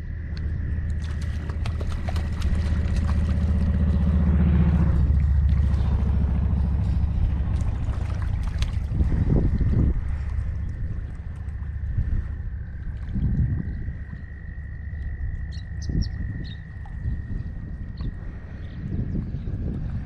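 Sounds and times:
wind rumble on microphone: 0.0 - 20.0
water splash: 0.9 - 12.2.

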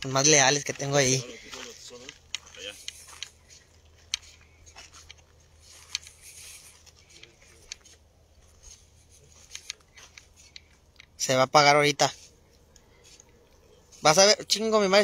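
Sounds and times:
footsteps scuffing over dry dirt: 0.0 - 15.0
light clicks: 9.3 - 11.2.

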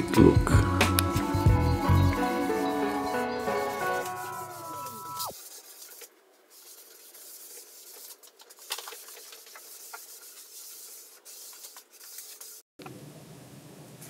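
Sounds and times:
cloth rag rubbing on wood: 2.2 - 12.6.

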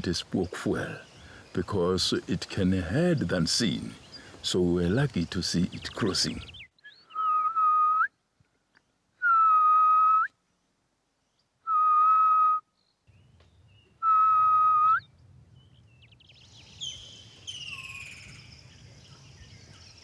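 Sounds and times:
other birds chirping: 0.0 - 7.6, 12.8 - 20.0
bird whistled calls: 6.5 - 8.1, 13.5 - 15.2, 16.4 - 18.5.

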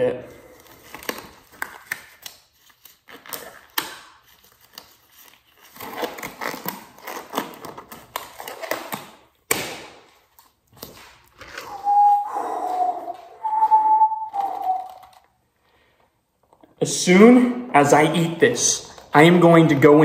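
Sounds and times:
disposable glove rustling: 10.2 - 15.2.

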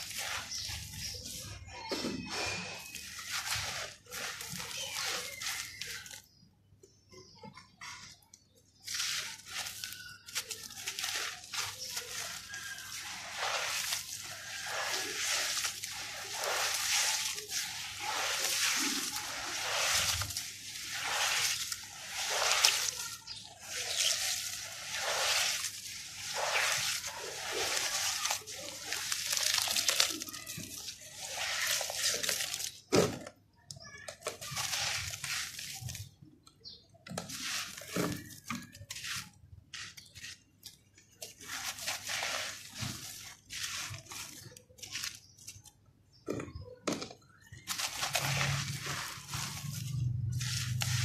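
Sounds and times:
wet dirt squelching and crumbling: 0.0 - 7.4, 8.0 - 33.4, 34.0 - 46.6, 47.2 - 51.0
water sloshing: 8.9 - 33.2.

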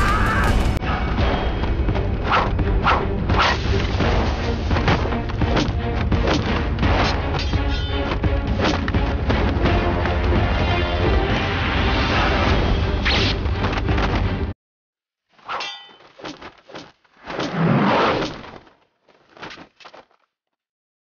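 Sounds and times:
ringing metallic clang: 15.6 - 16.1.

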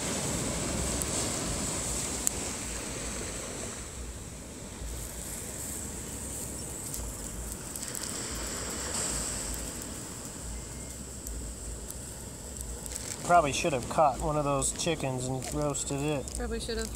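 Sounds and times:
surf: 0.0 - 16.9
wind gusting on microphone: 0.0 - 16.9.

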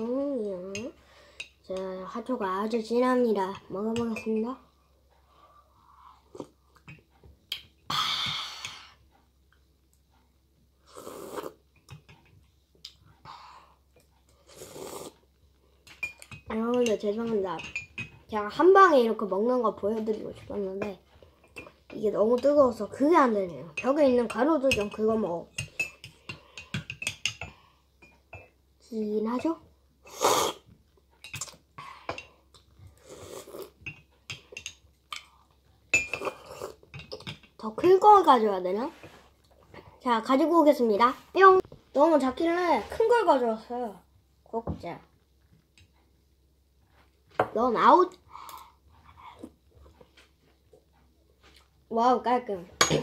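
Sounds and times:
person slurping: 10.8 - 11.6, 14.4 - 15.2, 30.1 - 30.7, 33.0 - 33.8, 36.2 - 36.8.

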